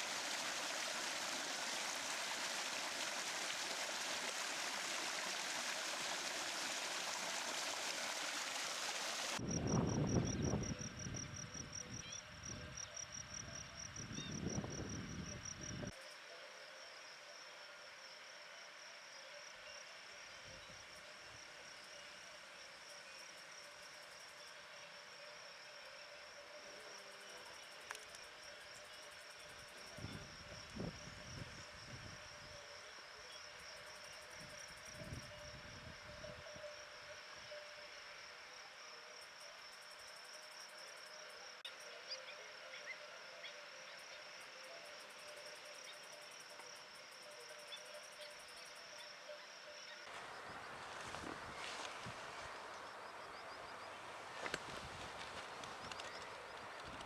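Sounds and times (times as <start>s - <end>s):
stream running water: 0.0s - 9.5s, 50.0s - 57.0s
high-pitched insect trill: 9.4s - 51.8s.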